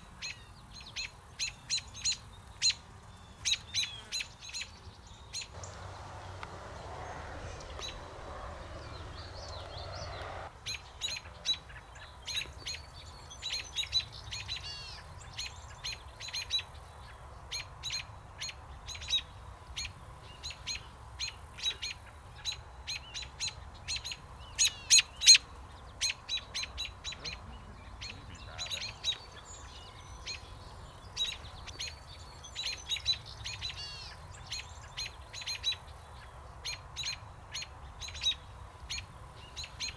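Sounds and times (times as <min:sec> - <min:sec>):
robins sharp alarm calls: 0:26.0 - 0:29.5.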